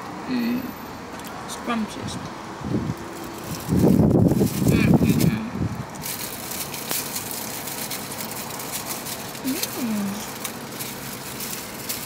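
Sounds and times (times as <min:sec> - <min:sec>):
food handling clicks and rustles: 0:03.0 - 0:12.0
person humming mmm: 0:09.4 - 0:10.4.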